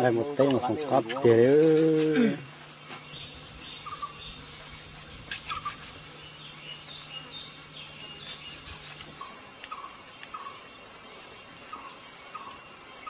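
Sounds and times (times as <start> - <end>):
steady low hum: 0.0 - 13.0
bird calls chirping: 3.0 - 10.8, 11.6 - 13.0.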